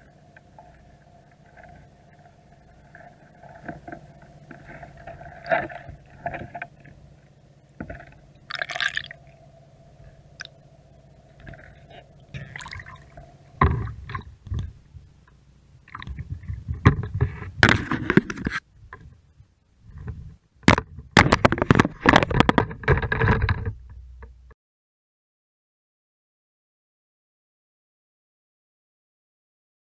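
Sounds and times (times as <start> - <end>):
water splashing and sloshing: 0.0 - 9.4, 11.2 - 15.0, 15.8 - 19.1.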